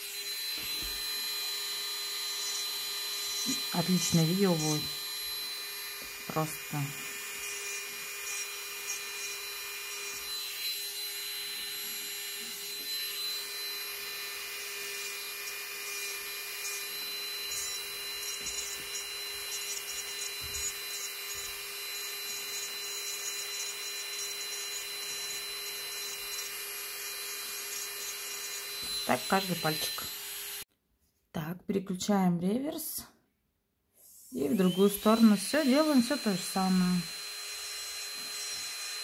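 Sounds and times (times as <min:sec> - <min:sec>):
nail drill whining: 0:00.0 - 0:30.7, 0:34.2 - 0:39.0.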